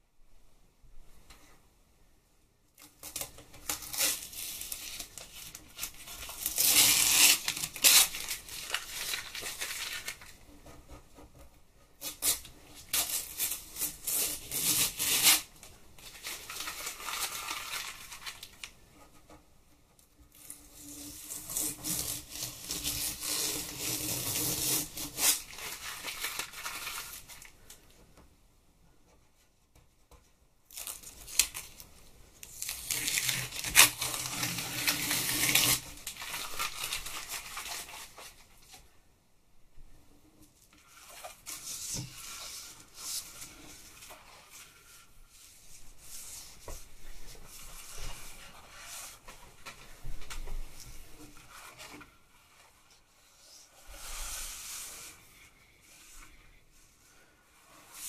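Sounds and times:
masking tape peeling off card: 0:03.0 - 0:10.2, 0:32.4 - 0:38.0.

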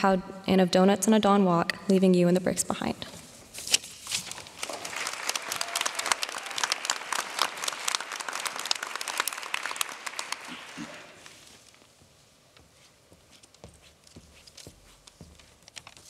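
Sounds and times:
audience applauding: 0:04.6 - 0:11.4.

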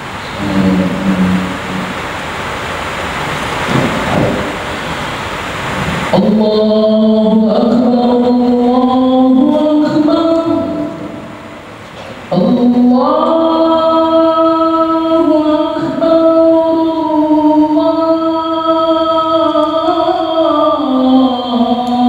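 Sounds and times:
man chanting call to prayer: 0:00.0 - 0:02.1, 0:06.1 - 0:11.6, 0:12.2 - 0:22.0.

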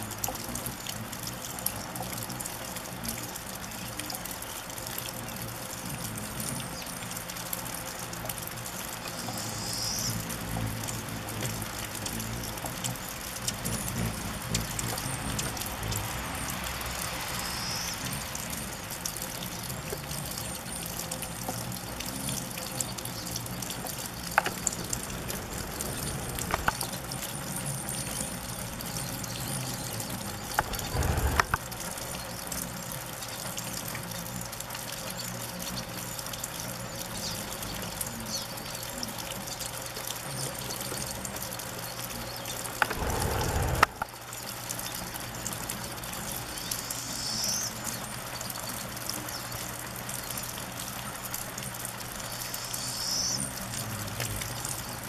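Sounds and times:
hummingbird wings whirring: 0:00.3 - 0:39.1, 0:40.2 - 0:55.0
sharp clicks: 0:24.3 - 0:26.9, 0:30.5 - 0:31.6.

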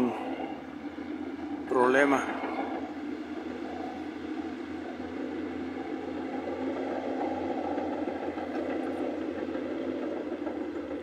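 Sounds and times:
distant heavy engines droning: 0:00.0 - 0:11.0.

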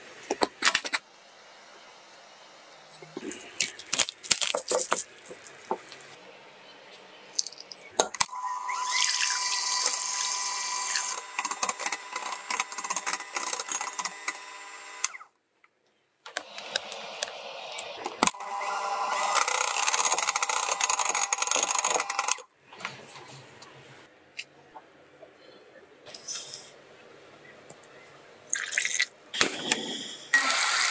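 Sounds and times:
electric hand mixer whirring: 0:08.3 - 0:15.1, 0:16.4 - 0:22.4, 0:30.4 - 0:30.9.

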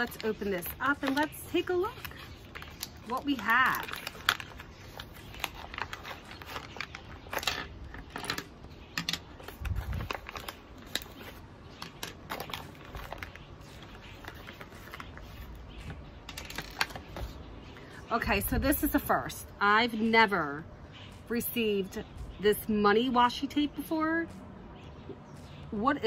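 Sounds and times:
packaging rustling: 0:00.0 - 0:17.5.

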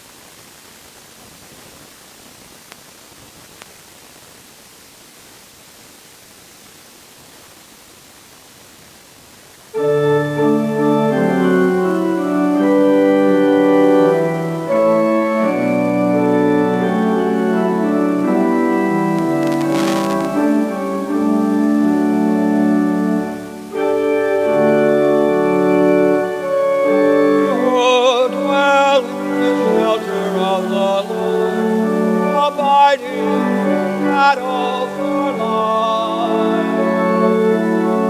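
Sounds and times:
pipe organ chords: 0:09.7 - 0:38.0
person singing with vibrato: 0:09.8 - 0:38.0.

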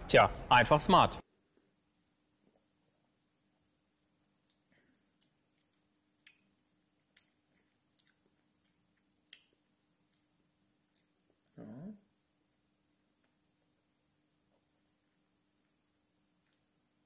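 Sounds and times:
wet lip-smacking and tongue clicks: 0:04.4 - 0:11.6.

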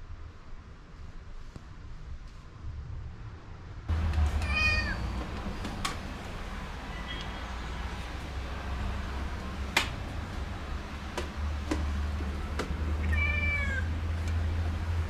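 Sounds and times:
cat meowing: 0:04.4 - 0:05.1, 0:13.0 - 0:14.0.

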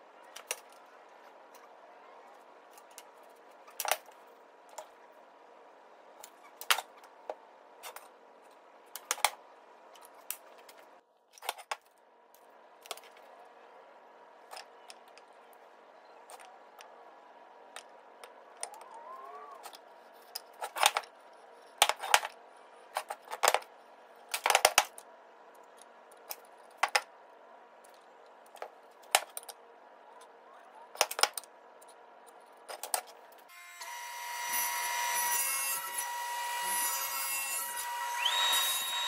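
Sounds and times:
table saw whining: 0:33.5 - 0:39.0.

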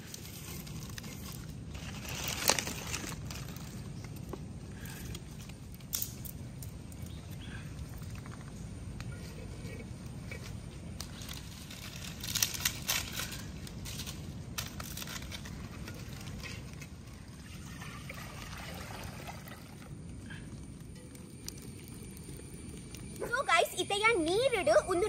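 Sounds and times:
water pouring and sloshing: 0:14.9 - 0:20.0.

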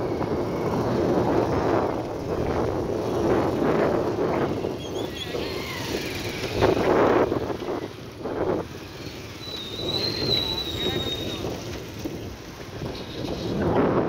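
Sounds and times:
motorcycle riding past: 0:00.0 - 0:14.0
wind buffeting microphone: 0:00.0 - 0:14.0.

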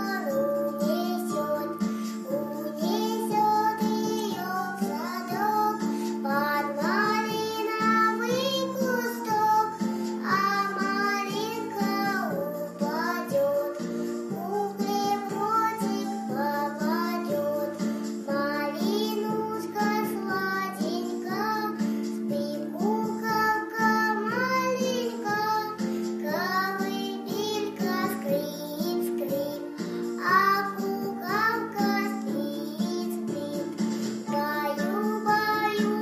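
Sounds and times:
girl singing a lullaby: 0:00.0 - 0:36.0
instrumental accompaniment: 0:00.0 - 0:36.0.

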